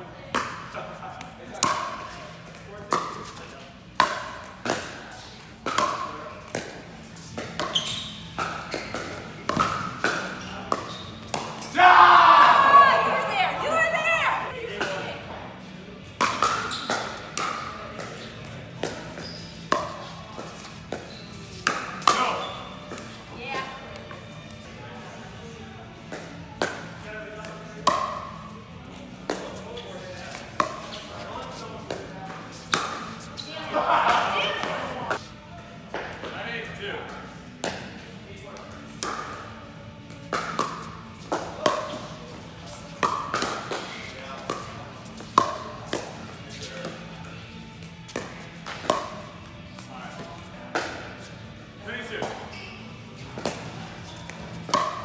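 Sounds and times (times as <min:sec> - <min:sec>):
background chatter: 0:00.0 - 0:55.0
paddle hitting plastic ball: 0:54.2 - 0:55.0.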